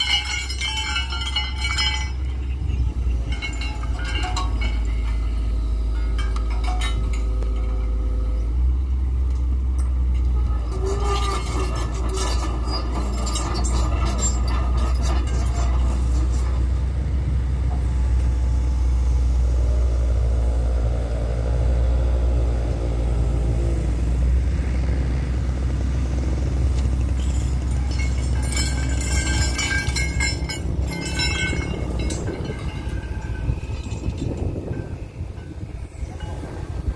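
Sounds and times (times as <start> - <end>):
metal chains clinking: 0.0 - 8.0, 10.8 - 16.7, 26.8 - 36.9
excavator diesel engine running: 0.0 - 36.9.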